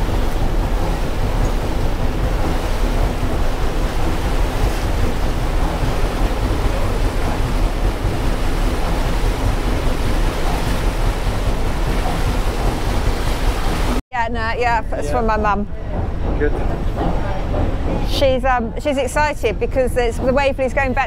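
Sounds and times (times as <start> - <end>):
wind buffeting microphone: 0.0 - 14.0
water rushing along a hull: 0.0 - 21.0.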